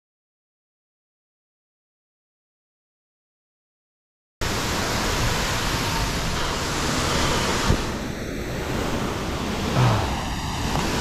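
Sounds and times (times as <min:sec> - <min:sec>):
waterfall rushing into pool: 0:04.4 - 0:11.0
brief knock: 0:09.8 - 0:10.2.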